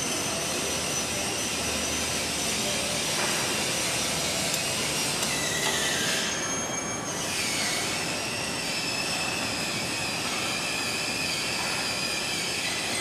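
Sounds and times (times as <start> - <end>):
high squeal: 0.0 - 13.0
machinery running with hiss: 0.0 - 13.0.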